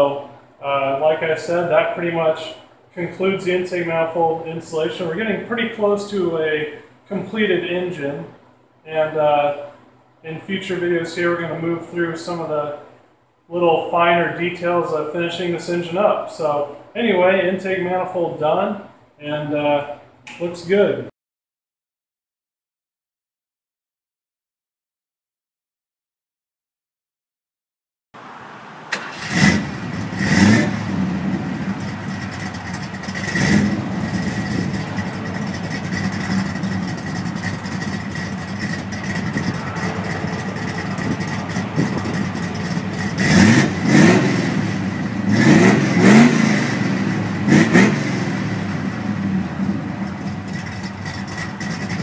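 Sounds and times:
car engine idling and revving: 28.2 - 52.0.

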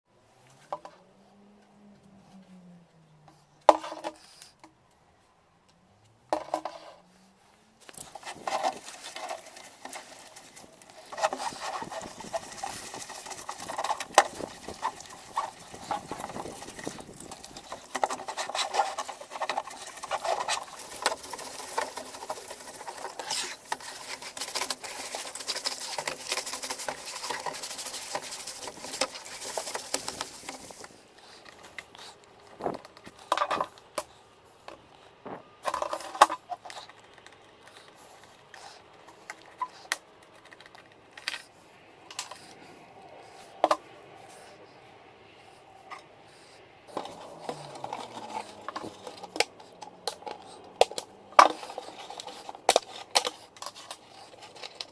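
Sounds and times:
brush scrubbing plastic: 7.8 - 32.2, 46.9 - 54.9.

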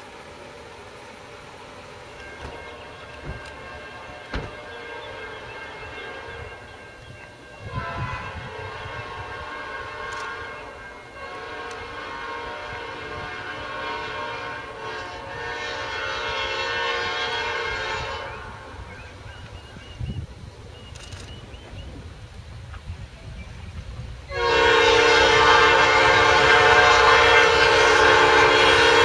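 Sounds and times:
locomotive rumble: 0.0 - 29.0
locomotive air horn blasts: 2.2 - 18.9, 24.3 - 29.0.

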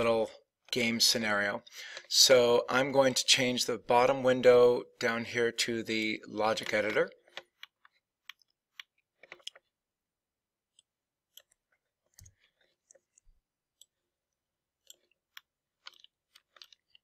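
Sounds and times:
computer mouse clicks: 6.5 - 9.7, 14.8 - 17.0.

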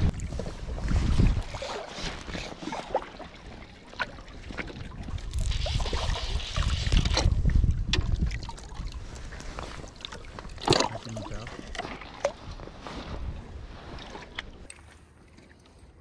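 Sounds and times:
wind on microphone: 0.0 - 3.0, 4.5 - 10.6
water sloshing and splashing: 0.0 - 16.0.

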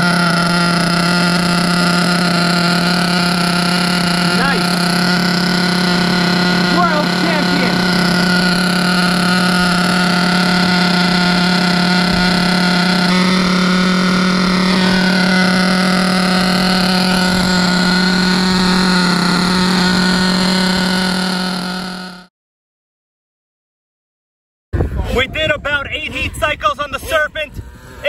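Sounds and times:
small two-stroke engine idling: 0.0 - 22.3.

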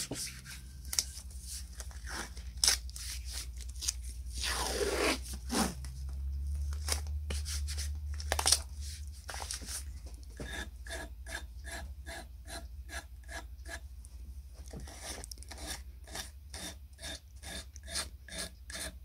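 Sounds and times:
tape crackling: 0.8 - 10.4.

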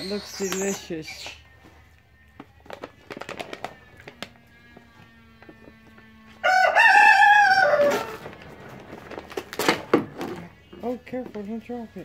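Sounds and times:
clicks and rattles of cardboard canister: 2.4 - 4.4.

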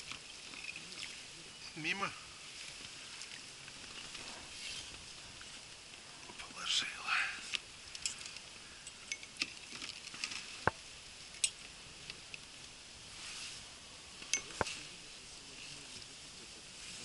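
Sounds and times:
fishing tackle clicking and rustling: 0.0 - 1.2, 2.6 - 6.0, 7.5 - 12.7.

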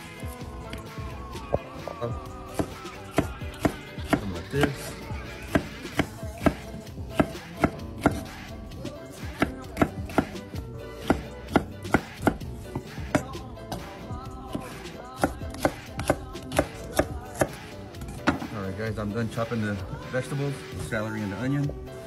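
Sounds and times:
knife chopping on wooden board: 2.5 - 8.4, 9.3 - 10.4, 11.0 - 13.9, 14.5 - 18.5.

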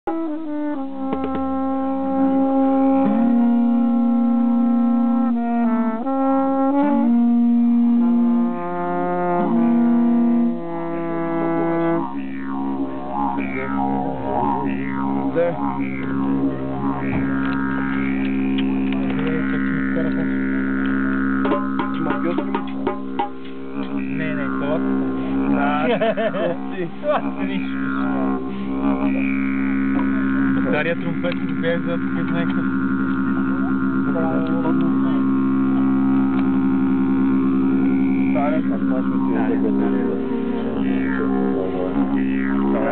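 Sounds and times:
didgeridoo drone: 0.0 - 42.9
horn-like tube notes: 0.0 - 42.9
darbuka taps: 1.0 - 1.7, 12.0 - 25.7, 27.6 - 36.9.

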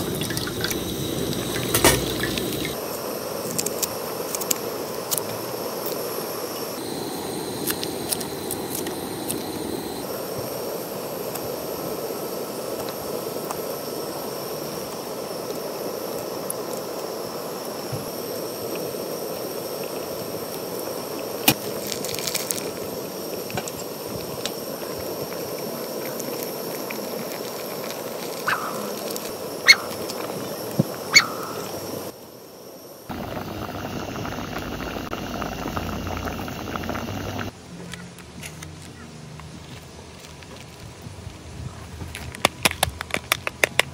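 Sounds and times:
stew bubbling in a pot: 0.0 - 2.9, 33.1 - 37.5.

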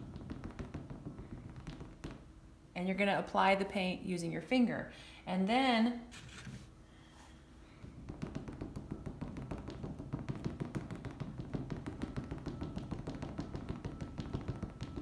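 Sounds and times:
fingertips tapping on canvas: 0.0 - 2.3, 7.8 - 15.0.

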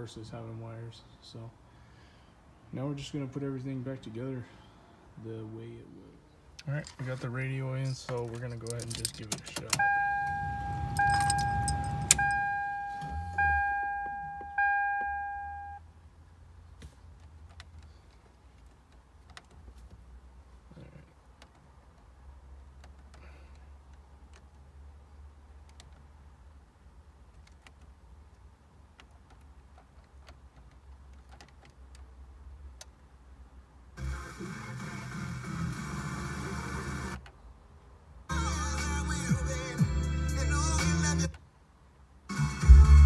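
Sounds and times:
dashboard warning chime: 9.7 - 15.8
low rumble: 10.0 - 14.6.

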